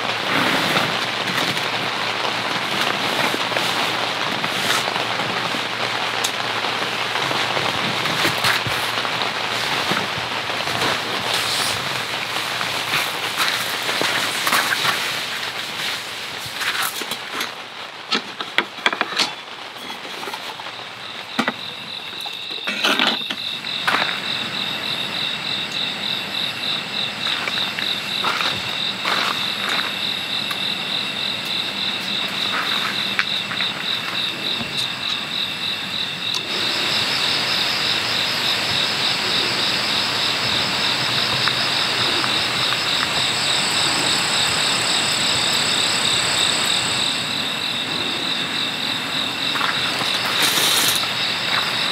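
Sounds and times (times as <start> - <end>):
crickets chirping: 0.0 - 51.9
steady hiss: 0.0 - 51.9
higher insect trill: 19.8 - 51.9.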